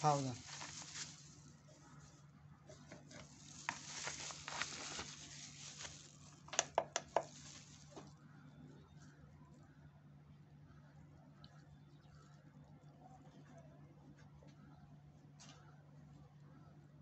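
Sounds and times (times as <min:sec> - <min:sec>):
containers scraping and rustling: 0:00.0 - 0:02.0, 0:02.6 - 0:08.1.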